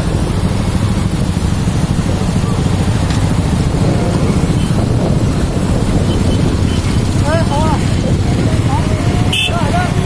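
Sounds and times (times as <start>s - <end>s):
motorcycle engines rumbling: 0.0s - 10.0s.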